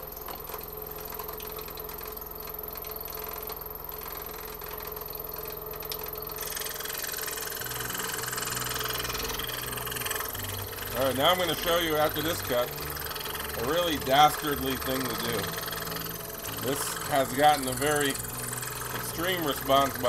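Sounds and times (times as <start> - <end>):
scroll saw cutting wood: 6.4 - 20.0.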